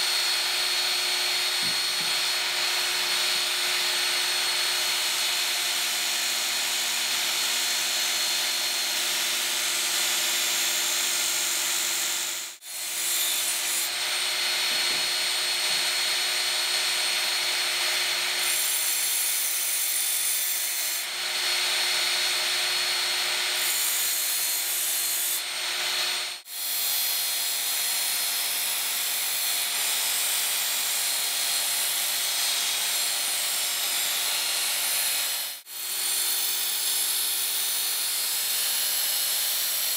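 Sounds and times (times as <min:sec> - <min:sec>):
belt sharpener motor whine: 0:00.0 - 0:05.9.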